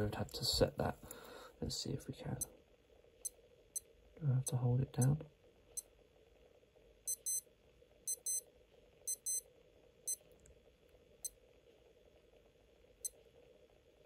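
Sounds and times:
faint steady hum: 0.0s - 14.0s
digital watch beeping: 7.1s - 7.4s, 8.1s - 8.4s, 9.1s - 9.4s.

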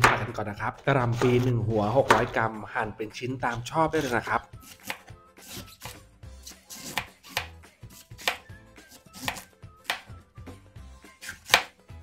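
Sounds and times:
knife chopping cabbage on board: 2.0s - 2.4s, 4.0s - 10.1s, 11.2s - 11.8s.

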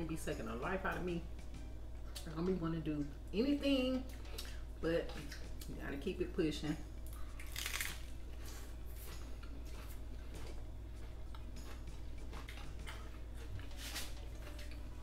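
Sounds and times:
bite into taco shell crunch: 7.1s - 8.1s
crunchy chewing: 7.1s - 15.0s.

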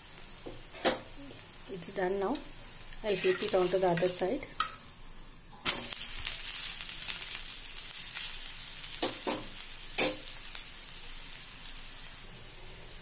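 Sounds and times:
flatbread sizzling in oil: 0.0s - 13.0s.

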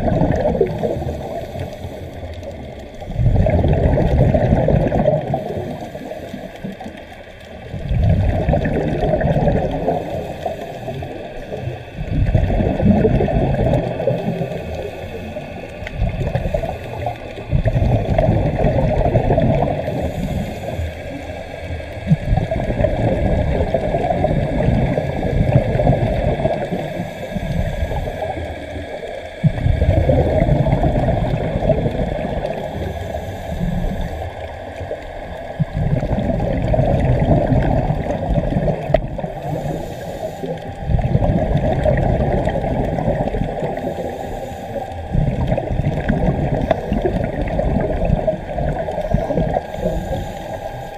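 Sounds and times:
exhaled bubbles rumbling underwater: 0.0s - 50.9s
regulator inhalation hiss: 0.6s - 3.2s, 5.2s - 7.0s, 9.7s - 12.7s, 13.7s - 18.0s, 19.6s - 22.4s, 24.7s - 35.6s, 38.8s - 41.0s, 43.1s - 45.2s, 48.8s - 50.9s.

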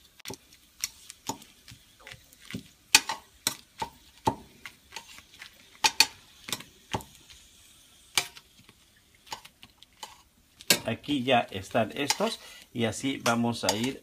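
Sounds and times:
faint oil sizzle: 0.0s - 14.0s
metal tongs clicking on skillet: 9.3s - 10.9s, 12.0s - 12.4s, 13.2s - 14.0s.

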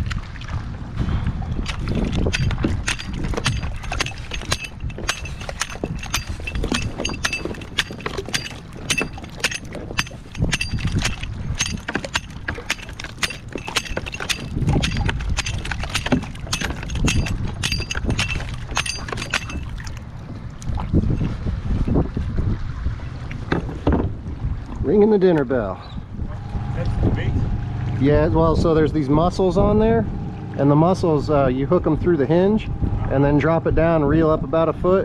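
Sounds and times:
scraper scraping shells: 1.7s - 19.8s.

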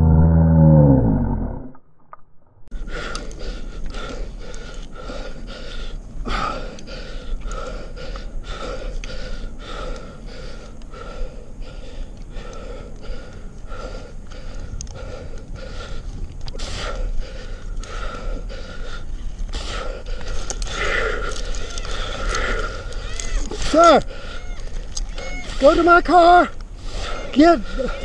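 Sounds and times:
man breathing heavily: 2.7s - 28.0s.

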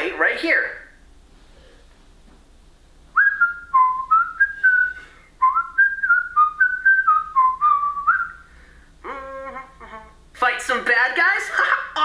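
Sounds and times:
toy whistling a tune: 3.2s - 8.4s.

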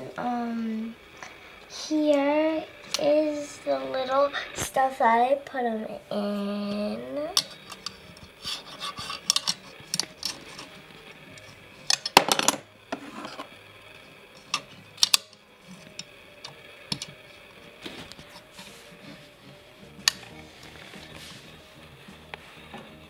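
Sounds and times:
glass slide scraping on plastic: 13.0s - 13.5s.

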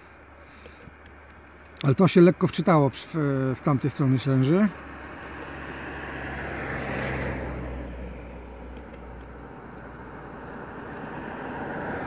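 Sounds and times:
road vehicle passing: 0.9s - 12.0s.

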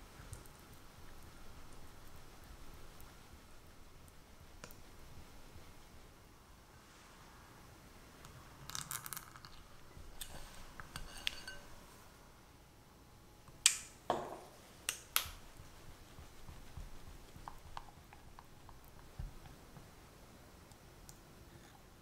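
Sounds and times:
glass bowl clinking: 10.9s - 11.8s.

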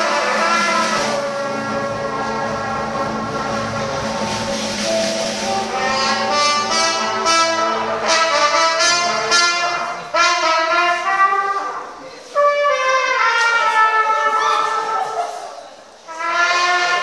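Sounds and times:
dance band playing: 0.0s - 12.0s.

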